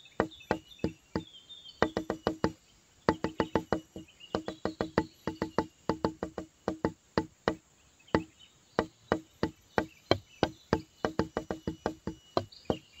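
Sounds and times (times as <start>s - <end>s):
wooden percussive knocks: 0.0s - 13.0s.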